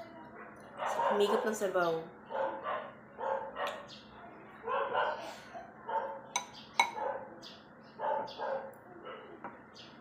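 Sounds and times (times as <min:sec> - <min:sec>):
dog barking: 0:00.8 - 0:01.6, 0:02.3 - 0:03.9, 0:04.6 - 0:06.3, 0:06.9 - 0:07.4, 0:08.0 - 0:09.4
cutlery clinking on a dish: 0:06.3 - 0:07.0.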